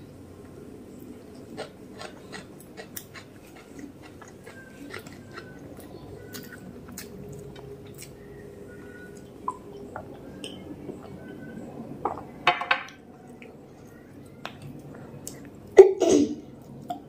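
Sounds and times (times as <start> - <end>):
steady low hum: 0.0 - 17.0
close chewing: 1.3 - 8.2.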